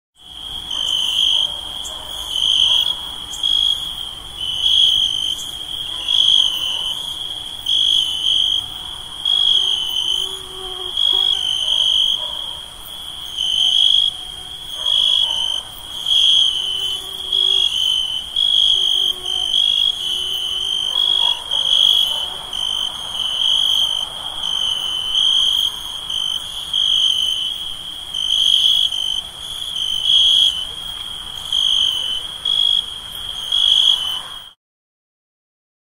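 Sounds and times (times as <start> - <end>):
crickets chirping: 0.2 - 34.6
high-pitched insect trill: 2.2 - 30.7.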